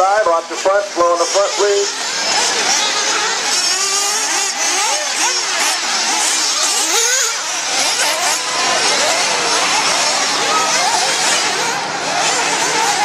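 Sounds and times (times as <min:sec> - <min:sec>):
small engines revving and whining: 0:00.0 - 0:13.0.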